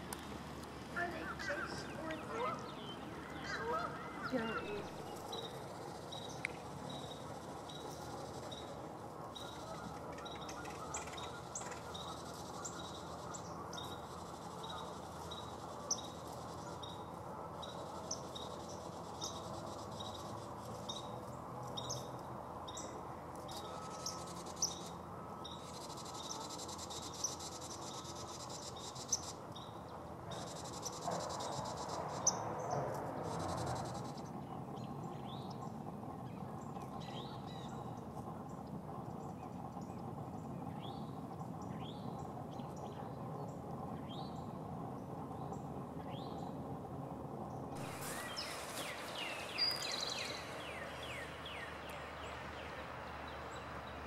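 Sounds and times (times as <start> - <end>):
steady low background noise: 0.0 - 54.0.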